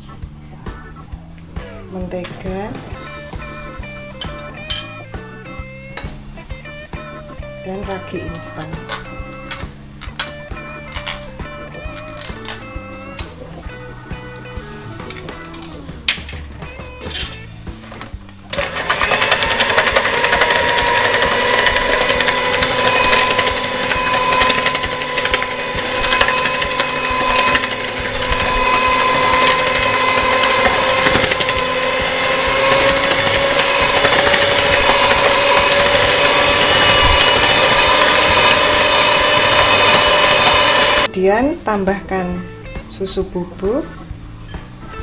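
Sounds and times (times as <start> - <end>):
electric hand mixer whining: 18.5 - 41.1.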